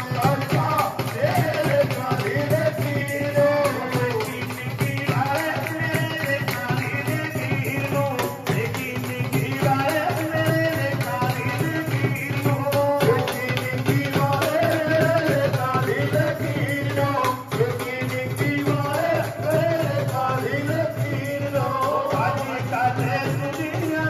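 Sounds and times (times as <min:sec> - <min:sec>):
hand percussion: 0:00.0 - 0:24.0
men singing devotional song: 0:00.0 - 0:24.0
people clapping: 0:03.6 - 0:11.4.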